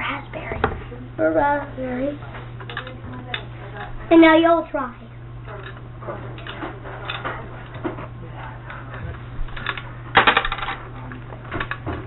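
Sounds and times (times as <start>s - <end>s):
gumball machine rattling clatter: 9.5s - 12.0s.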